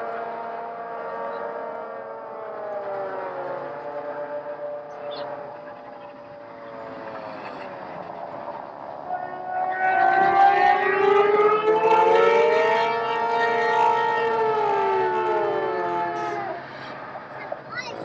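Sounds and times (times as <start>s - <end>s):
brass ensemble holding notes: 9.1s - 16.8s.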